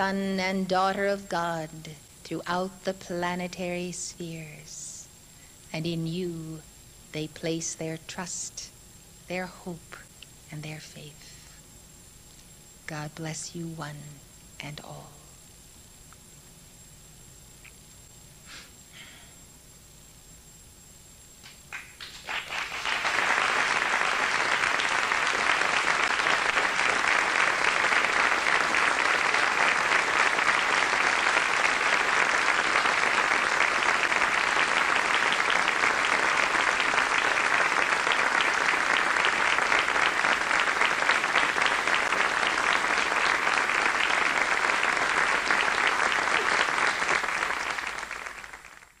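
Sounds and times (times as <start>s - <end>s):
large audience applauding: 21.7s - 49.0s.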